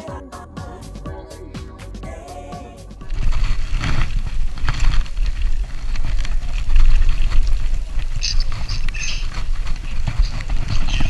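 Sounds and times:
wind buffeting microphone: 0:03.0 - 0:11.0.

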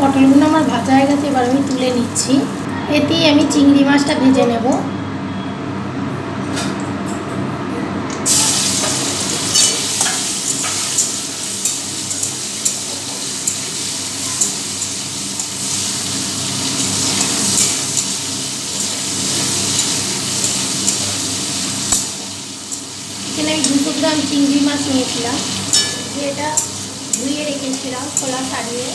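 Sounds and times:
prawns sizzling in hot oil: 0:08.3 - 0:28.9
spatula stirring in a pan: 0:08.8 - 0:28.9.

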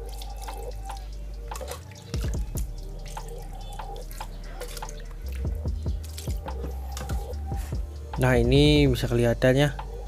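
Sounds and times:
water dripping and splashing: 0:00.0 - 0:08.0.

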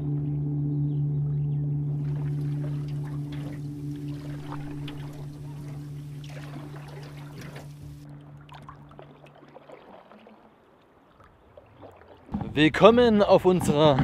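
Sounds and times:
low steady hum: 0:00.0 - 0:10.1
water dripping and trickling: 0:02.0 - 0:12.8
canoe paddles stroking water: 0:02.0 - 0:14.0.

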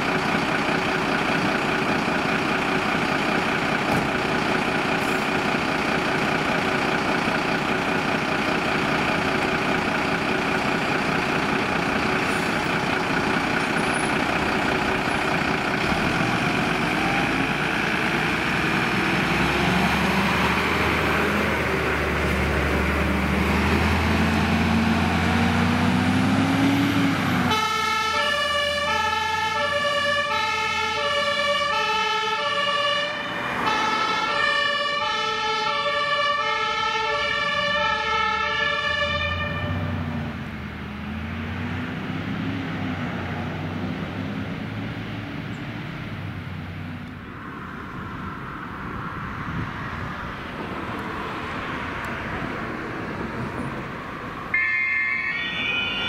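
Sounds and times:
diesel engine revving: 0:00.0 - 0:54.6
two-tone emergency siren: 0:15.9 - 0:20.6, 0:26.0 - 0:40.1, 0:54.4 - 0:56.0.

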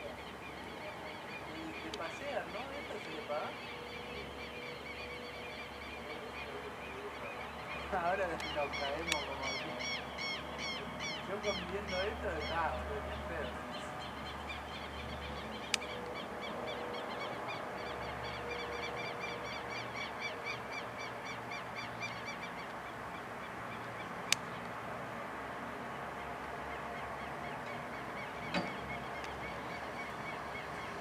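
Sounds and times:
high chirping animal calls: 0:00.0 - 0:24.6.

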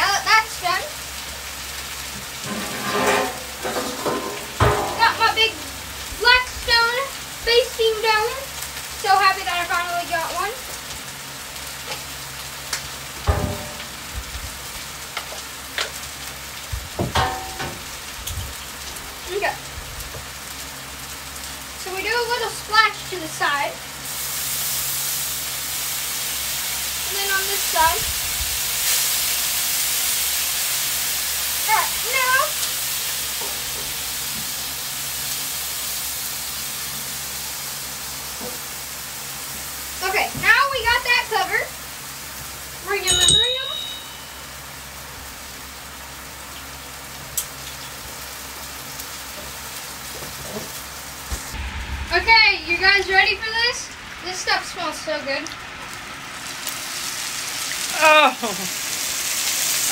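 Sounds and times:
food sizzling on griddle: 0:00.0 - 0:59.9
thump: 0:13.3 - 0:13.8
water steaming hiss: 0:17.9 - 0:43.0, 0:44.4 - 0:59.9
steady low hum: 0:51.3 - 0:55.9.

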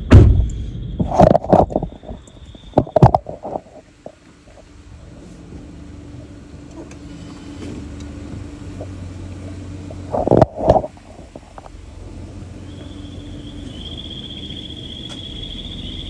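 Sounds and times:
loud knocks: 0:00.0 - 0:01.9
car engine idling: 0:00.0 - 0:16.0.

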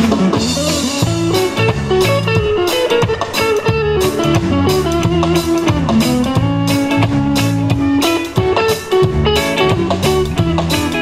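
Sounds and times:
bass guitar: 0:00.0 - 0:11.0
drum kit: 0:00.0 - 0:11.0
electric guitar: 0:00.0 - 0:11.0.

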